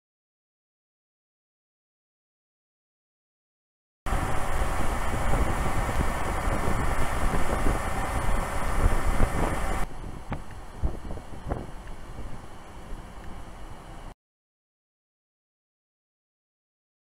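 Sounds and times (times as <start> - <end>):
tyre and road noise: 4.1 - 13.6
low engine rumble: 4.1 - 14.1.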